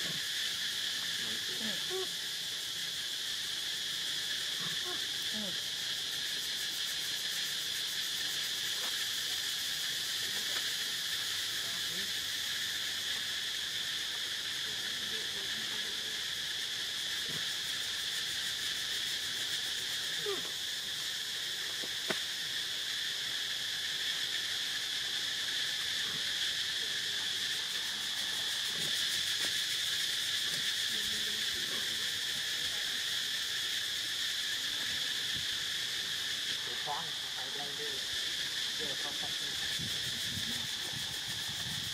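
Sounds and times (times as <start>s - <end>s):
insect chorus drone: 0.0s - 41.9s.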